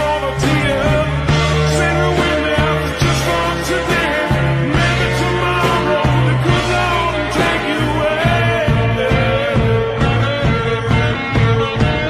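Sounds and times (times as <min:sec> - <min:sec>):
rock music: 0:00.0 - 0:12.0
steady bass line: 0:00.0 - 0:12.0.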